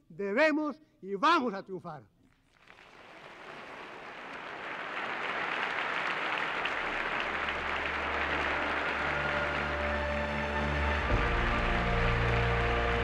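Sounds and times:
audience applauding: 2.4s - 13.0s.

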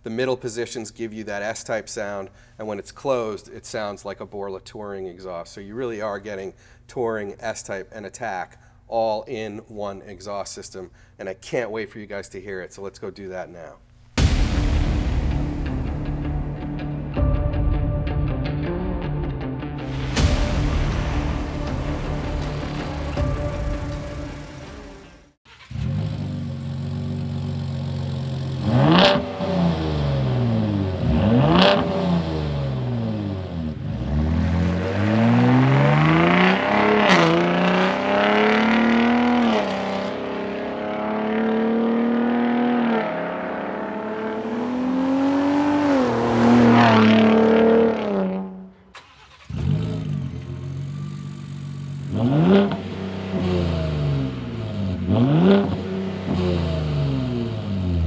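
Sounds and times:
truck engine idling and revving: 19.8s - 58.0s
truck accelerating hard: 20.1s - 58.0s.

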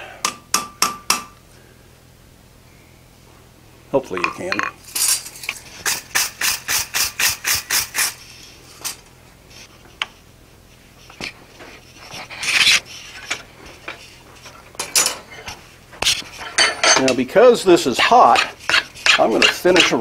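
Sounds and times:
hammer striking steel on anvil: 0.2s - 1.4s
short scraping sounds: 11.0s - 14.6s.

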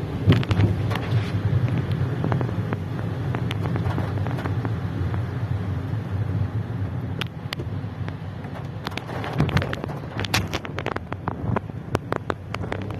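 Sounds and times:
engine and tyres rumbling: 0.0s - 12.9s
raindrops ticking on windscreen: 0.0s - 12.9s.

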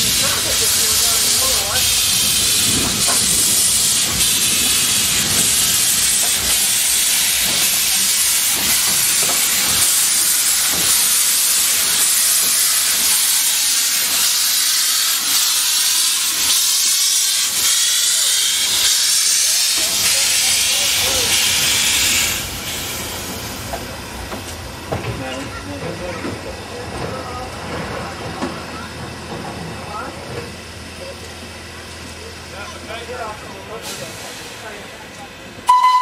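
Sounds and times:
steam hissing: 0.0s - 25.6s, 33.6s - 35.8s.

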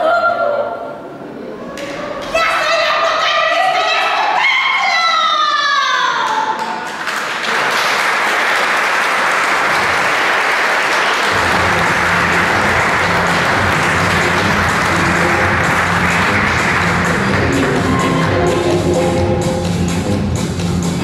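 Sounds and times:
audience applauding: 6.4s - 19.1s
music with low bass line: 11.3s - 21.0s.

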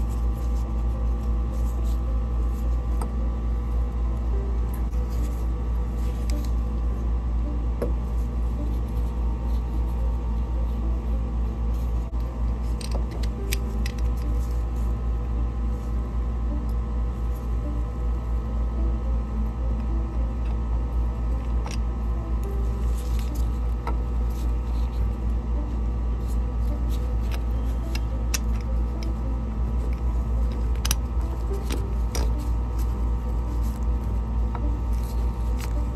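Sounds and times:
low mechanical drone: 0.0s - 35.9s.

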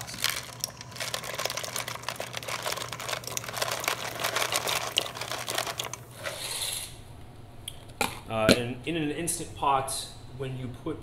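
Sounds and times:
dried pasta pouring and clattering: 0.0s - 6.4s.

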